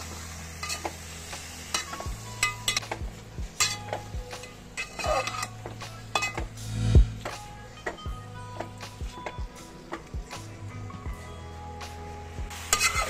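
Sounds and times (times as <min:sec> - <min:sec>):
meat frying with a light sizzle: 0:00.0 - 0:06.7, 0:11.1 - 0:13.0
metal spatula scraping a pot: 0:00.6 - 0:01.0, 0:03.6 - 0:06.8, 0:12.7 - 0:13.0.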